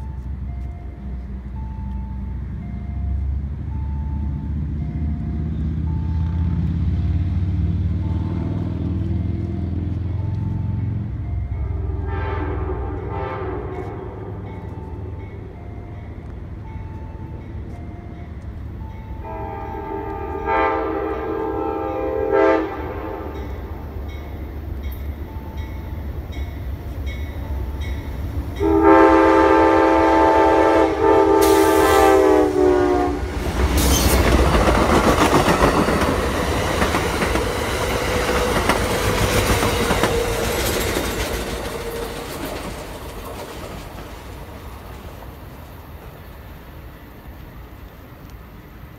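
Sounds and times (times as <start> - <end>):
train air horn blasts: 11.6 - 14.5, 19.2 - 23.8, 28.6 - 34.2
train wheels clattering over rails: 33.3 - 45.4.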